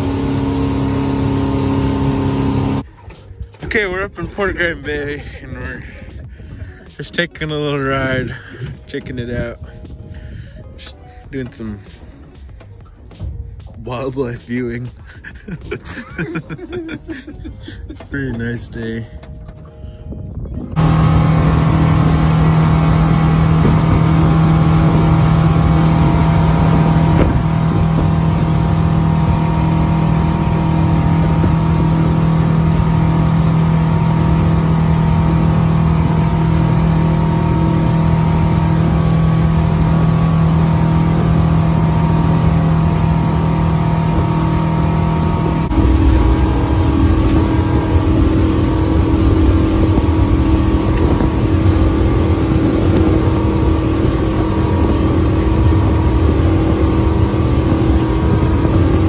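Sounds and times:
water rushing: 0:00.0 - 0:03.0, 0:20.8 - 0:59.0
motorboat engine droning: 0:00.0 - 0:59.0.

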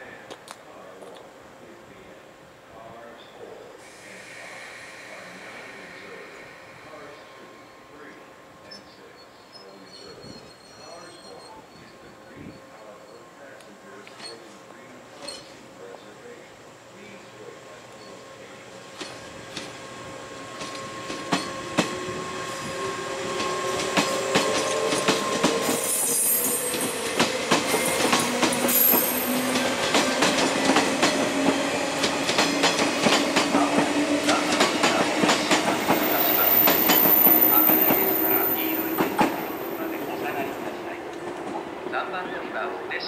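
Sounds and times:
shrill wheel squeals: 0:07.0 - 0:13.5
train motor hum: 0:17.2 - 0:42.1
wheels clacking over rail joints: 0:20.6 - 0:22.0, 0:23.4 - 0:25.8.

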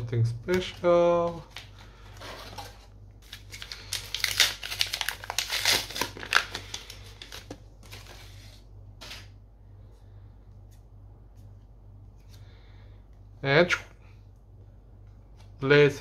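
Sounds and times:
plastic wrapper crinkling: 0:00.6 - 0:08.4.

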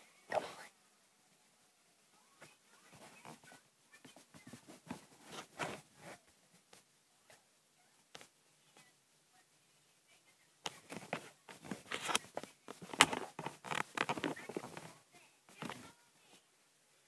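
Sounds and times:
device rustling and knocking: 0:10.8 - 0:15.0.

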